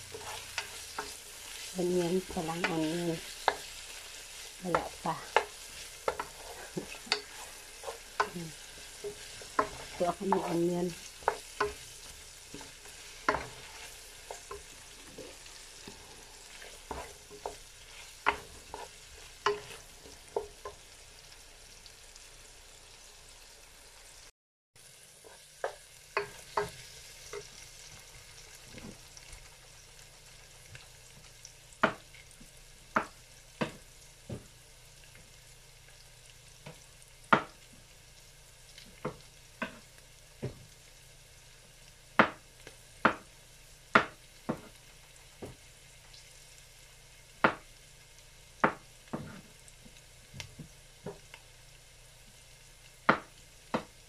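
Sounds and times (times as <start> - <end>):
onions sizzling in oil: 0.0 - 54.0
wooden spoon knocking on pan: 2.2 - 3.7, 4.7 - 13.7, 16.8 - 20.8, 25.6 - 27.5, 31.8 - 32.1, 32.9 - 34.5, 36.6 - 37.6, 39.0 - 40.6, 42.2 - 42.4, 43.0 - 43.3, 43.9 - 44.7, 47.4 - 47.7, 48.6 - 49.4, 50.4 - 51.3, 53.1 - 54.0.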